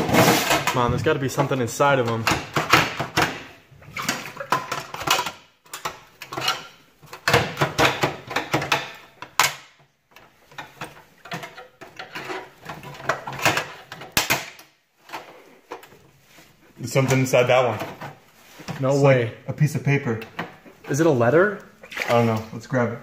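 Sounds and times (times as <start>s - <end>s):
metal drawers scraping and clanking: 0.0s - 1.2s.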